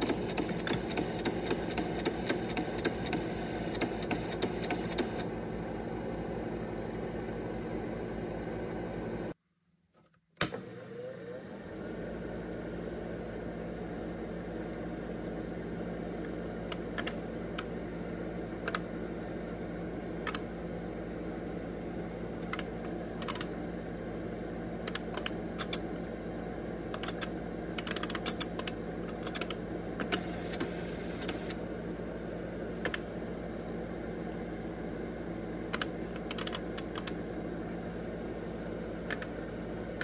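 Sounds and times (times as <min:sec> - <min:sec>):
computer running hum: 0:00.0 - 0:09.4, 0:10.8 - 0:40.0
keyboard typing clicks: 0:18.6 - 0:18.9, 0:22.4 - 0:23.5, 0:24.9 - 0:25.8, 0:26.9 - 0:31.5, 0:35.7 - 0:37.2.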